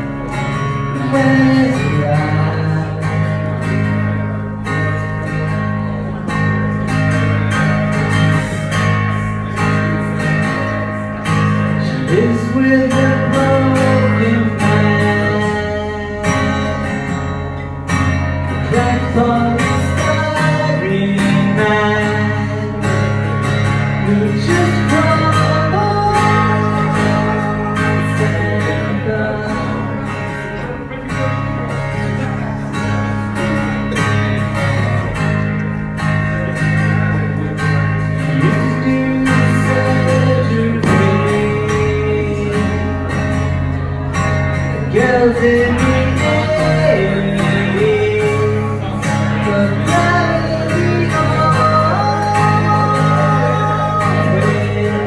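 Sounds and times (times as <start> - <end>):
acoustic guitar strumming: 0.0 - 55.0
person singing: 18.4 - 31.0, 44.7 - 55.0.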